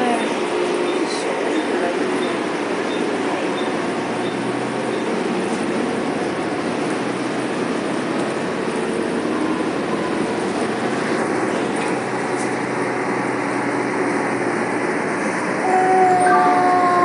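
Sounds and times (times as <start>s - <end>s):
constant rushing noise: 0.0s - 17.0s
diesel engine humming: 0.0s - 17.0s.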